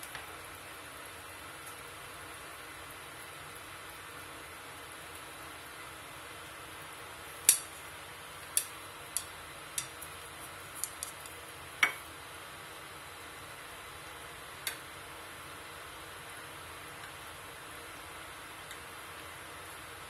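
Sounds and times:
utensil tapping steel pot: 0:07.4 - 0:07.8, 0:08.5 - 0:10.1.

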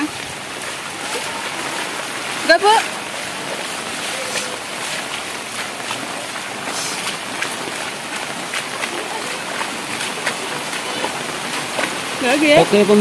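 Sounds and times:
water splashes and drops: 0:00.0 - 0:13.0
heavy rain rushing hiss: 0:06.1 - 0:13.0.

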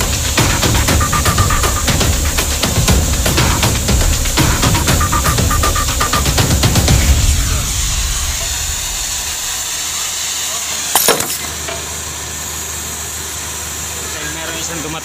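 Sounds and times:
gas torch hissing: 0:00.0 - 0:00.9, 0:06.4 - 0:14.2.

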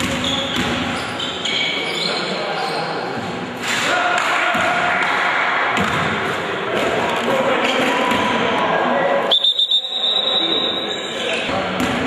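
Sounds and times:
voices echoing in a gym: 0:00.0 - 0:12.0
referee's whistle: 0:09.3 - 0:11.2.

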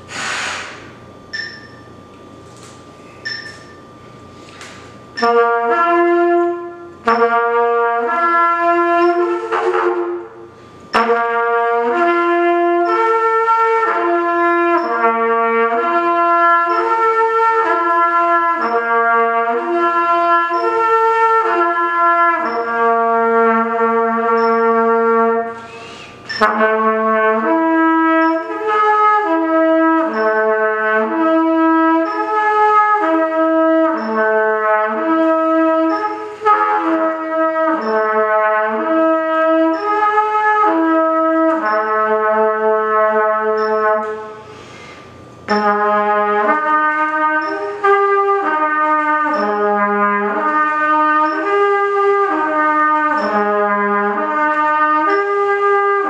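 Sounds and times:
short breaths: 0:00.0 - 0:01.0, 0:25.6 - 0:26.3, 0:44.4 - 0:45.2
trumpet playing slurred notes: 0:05.2 - 0:44.6, 0:45.4 - 0:56.0.

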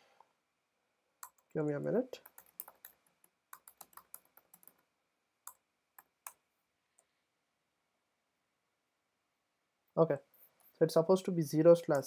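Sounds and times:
typing on computer keyboard: 0:02.2 - 0:04.9.

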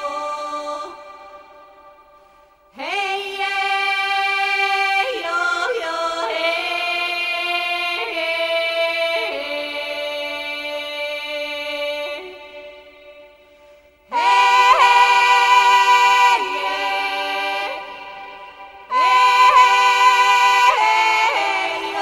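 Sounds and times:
voice singing sustained notes: 0:14.0 - 0:22.0.

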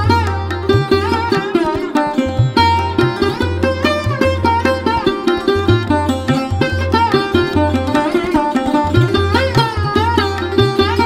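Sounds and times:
plucked string melody: 0:00.0 - 0:11.0.

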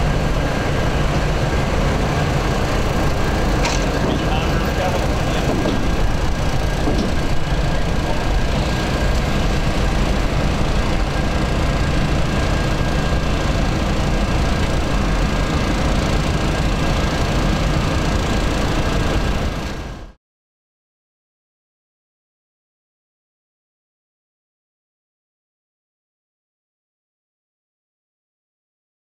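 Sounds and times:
locomotive engine rumble: 0:00.0 - 0:20.2
thin steady whine: 0:00.0 - 0:20.2.

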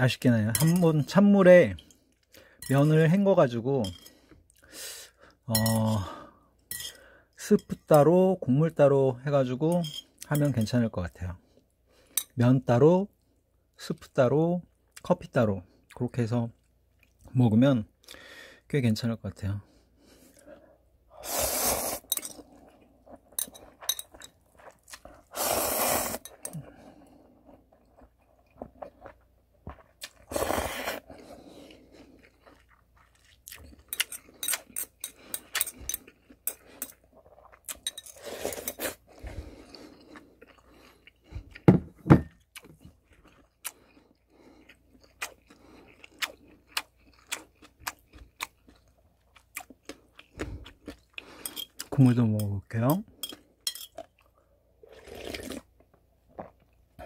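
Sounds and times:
person slurping noodles: 0:21.1 - 0:22.1, 0:25.2 - 0:26.8, 0:30.2 - 0:31.9, 0:54.8 - 0:55.7
chewing with small clicks: 0:31.6 - 0:37.9, 0:39.6 - 0:41.7, 0:42.4 - 0:52.0.

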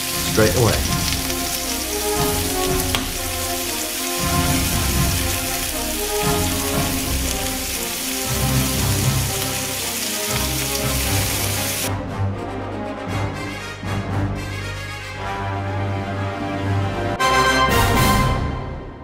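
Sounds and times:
chicken skewers sizzling on griddle: 0:00.0 - 0:11.9
background music: 0:00.0 - 0:19.0.

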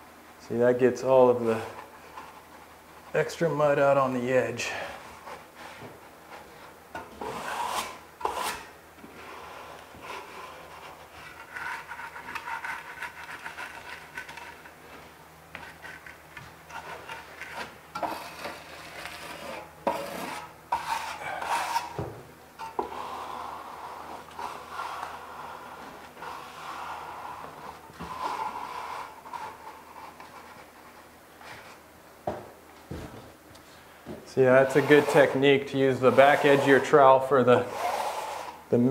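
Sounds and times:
trowel scraping membrane on wall: 0:06.6 - 0:14.7, 0:15.5 - 0:22.0, 0:22.6 - 0:30.5, 0:34.6 - 0:38.6.

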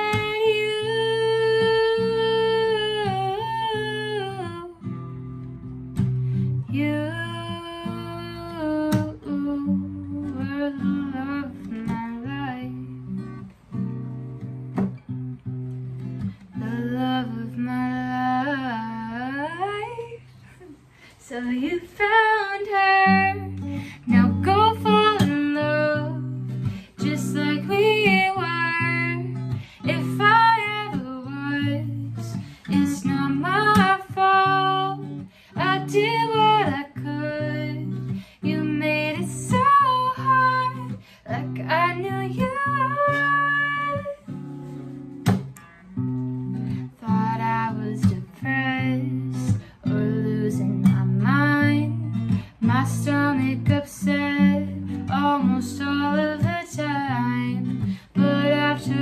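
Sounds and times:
woman singing: 0:00.0 - 0:05.2, 0:06.1 - 0:13.5, 0:16.2 - 0:44.5, 0:46.3 - 0:59.0
strummed acoustic guitar: 0:00.0 - 0:59.0
singer breathing: 0:20.2 - 0:21.2, 0:23.6 - 0:24.1, 0:29.4 - 0:29.9, 0:35.2 - 0:35.6, 0:38.1 - 0:38.5, 0:40.9 - 0:41.3.

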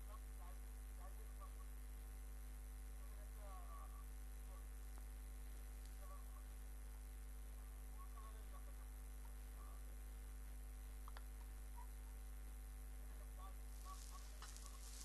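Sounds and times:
low electrical hum: 0:00.0 - 0:15.0
faint wavering sounds: 0:13.0 - 0:15.0.

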